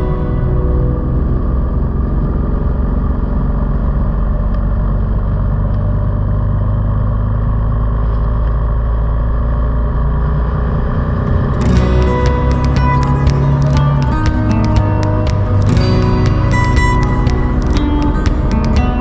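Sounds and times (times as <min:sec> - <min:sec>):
motor vehicle rumbling: 0:00.0 - 0:19.0.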